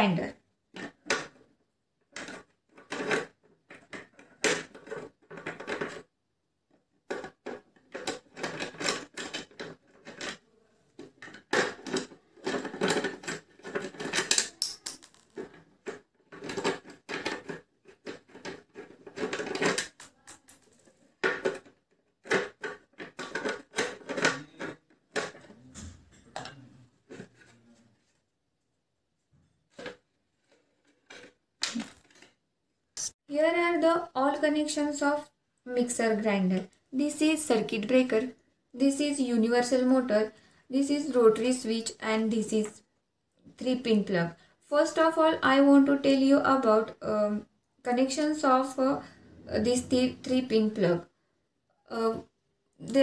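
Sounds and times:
clicks taps and scrapes: 7.0 - 28.2, 29.4 - 32.4.

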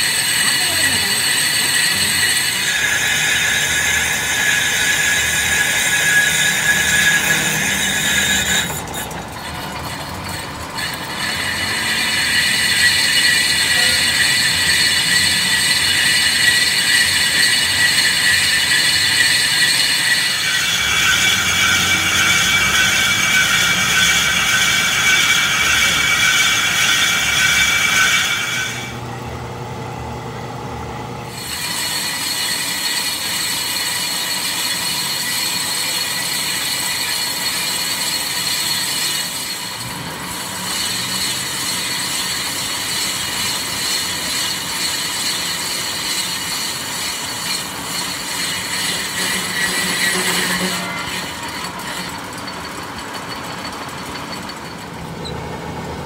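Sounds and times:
high-pitched metallic squeal: 0.0 - 29.0, 31.3 - 55.6
lathe running: 0.0 - 56.0.

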